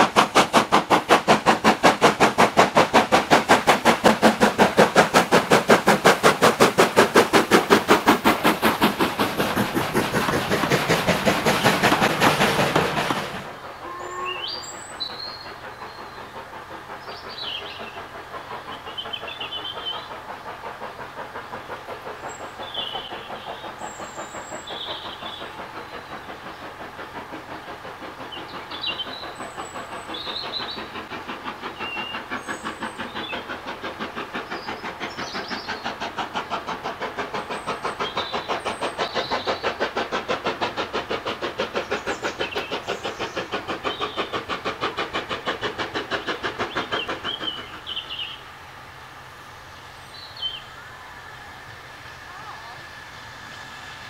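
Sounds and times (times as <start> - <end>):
steam locomotive chuffing: 0.0 - 54.0.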